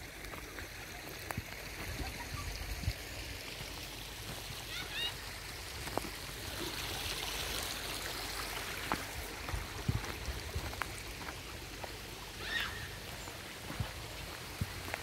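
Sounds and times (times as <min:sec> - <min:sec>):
footsteps crunching on mulch: 0:08.4 - 0:15.0.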